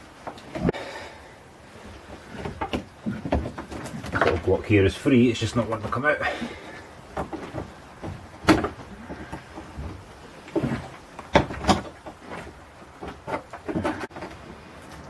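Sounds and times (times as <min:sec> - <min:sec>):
wooden knocks and scrapes: 0:01.9 - 0:04.6, 0:06.5 - 0:15.0.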